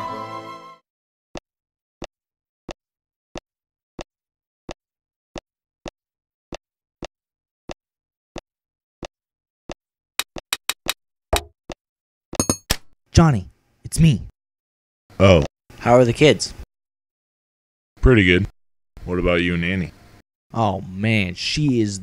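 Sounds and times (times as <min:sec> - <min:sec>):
flute music: 0:00.0 - 0:00.8.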